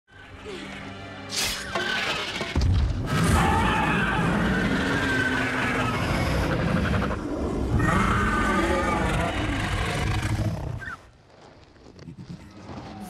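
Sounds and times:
deep dragon roar: 3.1s - 10.8s.

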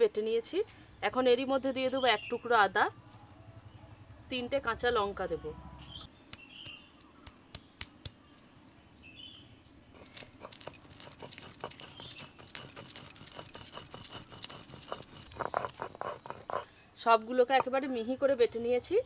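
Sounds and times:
stone scraping on stone: 10.0s - 16.7s.

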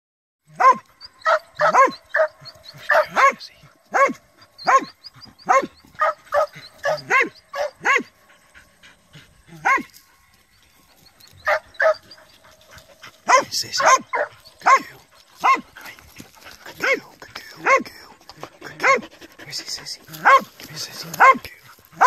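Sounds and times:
dog barking: 0.5s - 8.2s, 9.6s - 9.9s, 11.4s - 12.2s, 13.2s - 15.7s, 16.8s - 18.0s, 18.7s - 22.0s.

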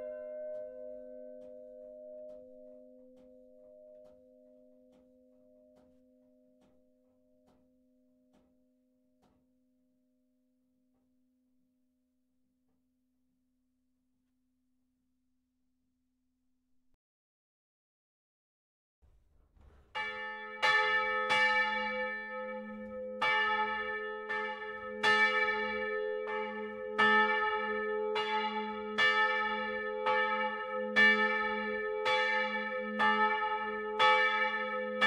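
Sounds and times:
church bell ringing: 0.0s - 6.7s, 20.0s - 35.0s.

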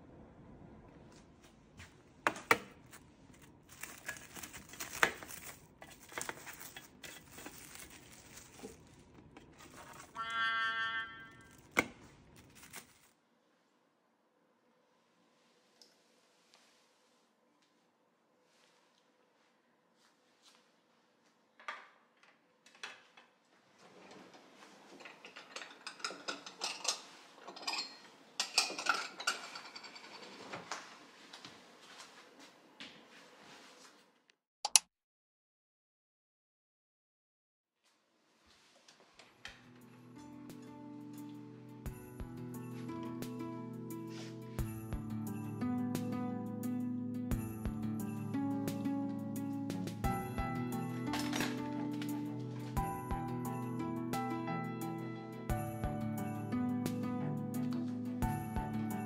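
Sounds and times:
cling wrap crinkling: 2.8s - 10.2s, 11.4s - 13.2s
glass and ceramic bowls clinking: 25.2s - 30.3s.

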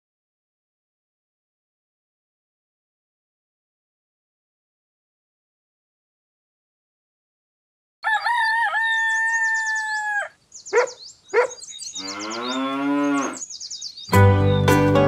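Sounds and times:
rooster crowing: 8.0s - 10.4s
small birds chirping: 8.0s - 15.0s
cow mooing: 12.0s - 13.4s.

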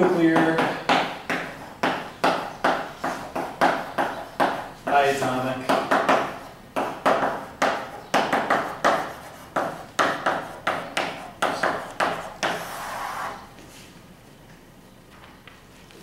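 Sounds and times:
chalk tapping and scratching: 1.3s - 5.1s, 5.7s - 13.4s
chalk scraping on blackboard: 7.2s - 13.5s.

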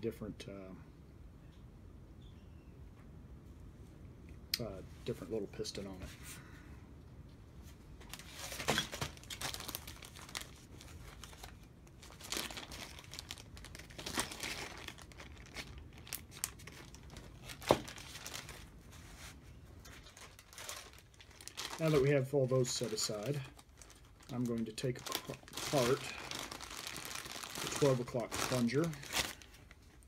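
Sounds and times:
plastic bag crinkling: 8.1s - 30.0s.

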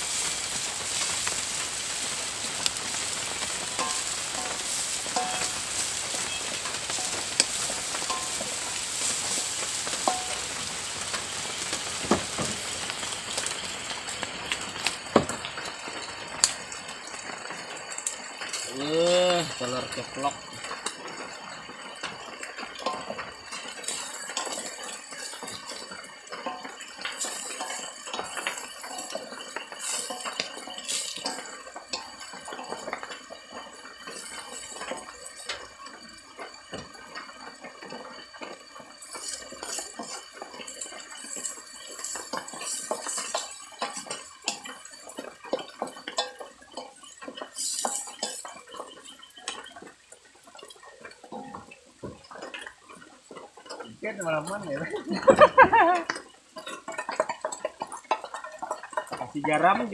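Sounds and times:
low frying sizzle: 0.0s - 59.9s
spatula scraping metal wok: 2.9s - 10.8s, 26.5s - 33.0s.

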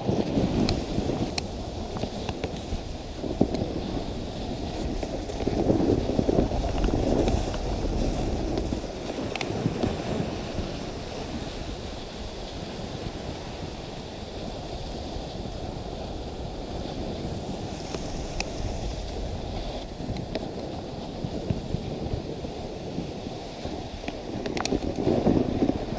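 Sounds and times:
sled runners sliding on snow: 0.0s - 25.9s
wind buffeting microphone: 0.0s - 25.9s.

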